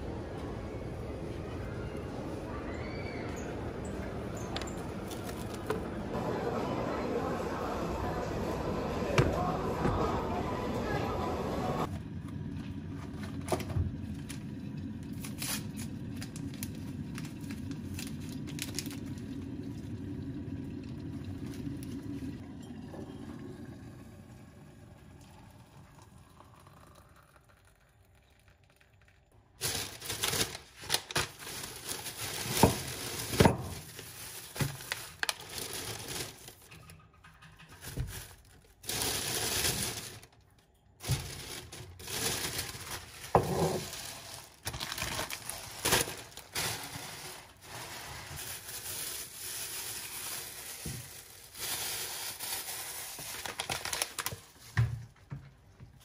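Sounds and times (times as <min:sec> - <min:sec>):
plastic packaging crinkling: 0:29.5 - 0:36.7, 0:37.9 - 0:54.7.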